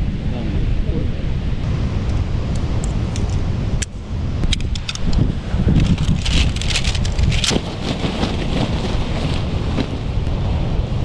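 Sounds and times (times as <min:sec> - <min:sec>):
outdoor noise: 0:00.0 - 0:11.0
wind buffeting microphone: 0:00.0 - 0:11.0.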